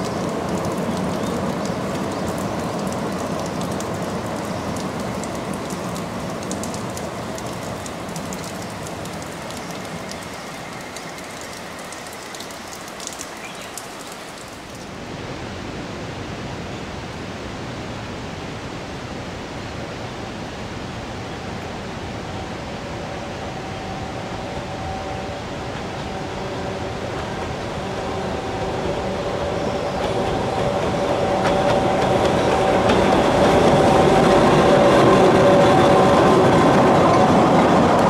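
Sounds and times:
train rumbling: 0.0s - 12.4s, 21.1s - 38.0s
steady rain: 0.0s - 38.0s.

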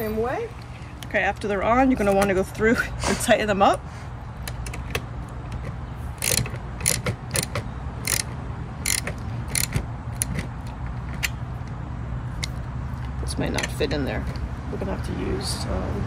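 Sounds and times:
socket ratchet clicking: 4.4s - 11.8s.

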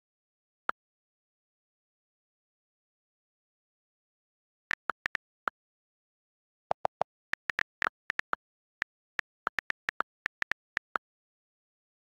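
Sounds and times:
on-screen keyboard clicks: 4.7s - 5.2s, 6.7s - 11.0s.

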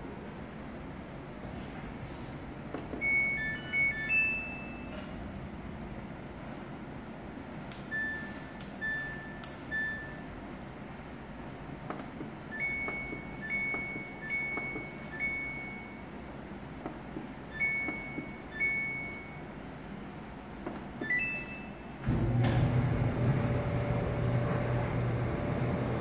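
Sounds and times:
control panel beeping: 3.0s - 5.0s, 7.7s - 10.4s, 12.5s - 16.1s, 17.5s - 19.5s, 21.0s - 21.9s
dryer drum motor humming: 22.0s - 26.0s.

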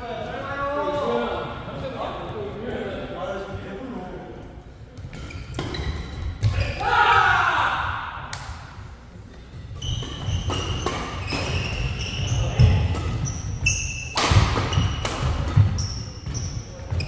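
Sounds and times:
shoes squeaking on wooden floor: 5.1s - 6.7s, 9.7s - 17.0s
racket striking shuttlecock: 9.8s - 12.0s, 14.0s - 16.4s.

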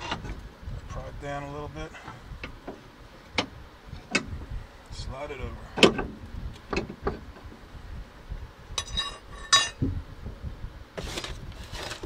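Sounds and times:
metal scrape: 8.8s - 9.8s.

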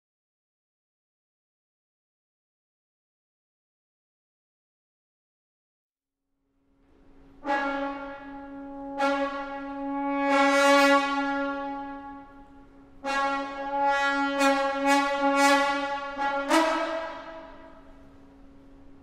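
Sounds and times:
horn-like chords: 7.2s - 19.0s.

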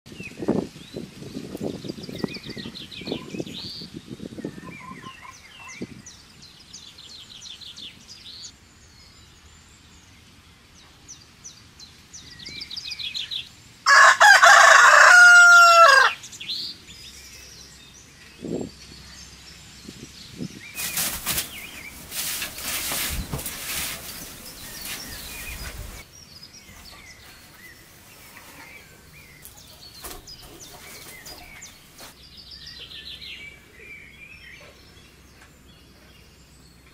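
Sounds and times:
small birds chirping: 0.1s - 15.1s, 15.9s - 36.9s
rooster crowing: 13.9s - 16.2s
rustling: 20.8s - 26.0s, 26.7s - 32.2s.

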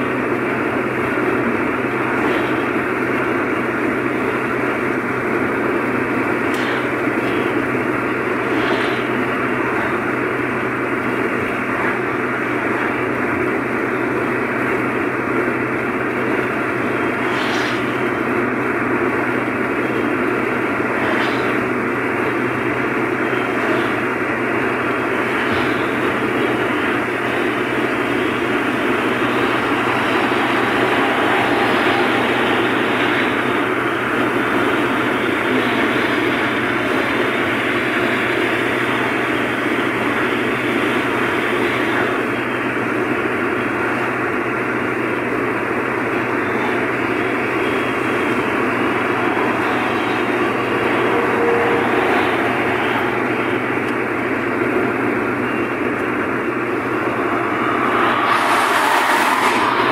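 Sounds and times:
car cabin road noise: 17.8s - 37.3s, 46.2s - 59.9s.

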